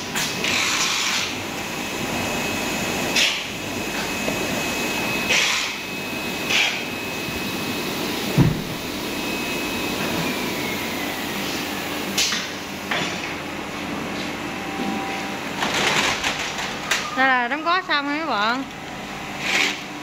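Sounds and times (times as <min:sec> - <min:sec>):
packaging machine running: 0:00.0 - 0:13.4, 0:14.8 - 0:17.1, 0:18.4 - 0:20.0
dull thump: 0:08.4 - 0:08.8.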